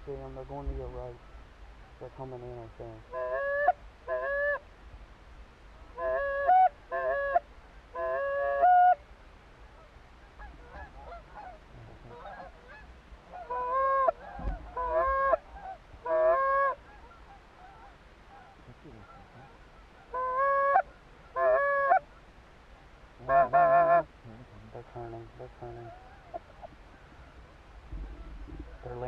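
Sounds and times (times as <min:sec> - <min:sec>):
distant goose honks: 0:00.0 - 0:04.7, 0:05.7 - 0:09.0, 0:09.6 - 0:29.0
goose honking: 0:03.0 - 0:04.6, 0:05.9 - 0:09.0, 0:10.3 - 0:22.2, 0:23.2 - 0:24.1, 0:24.7 - 0:29.0.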